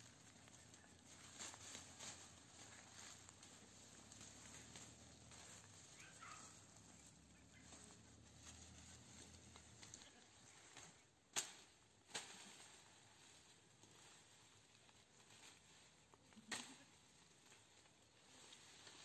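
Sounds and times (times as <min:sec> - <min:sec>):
leaves rustling: 0:00.0 - 0:19.0
stems snapping: 0:10.7 - 0:12.8.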